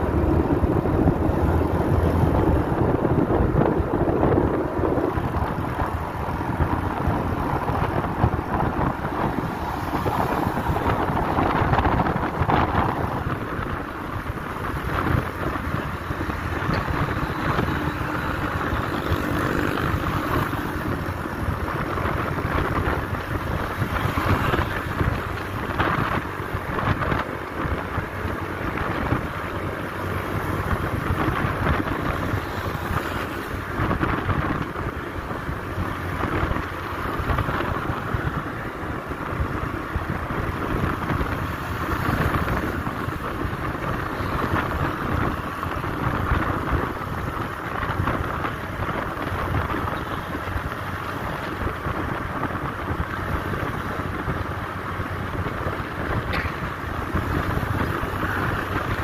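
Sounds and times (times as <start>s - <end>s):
scooter engine and road noise: 0.0s - 59.0s
wind rushing over microphone: 0.0s - 59.0s.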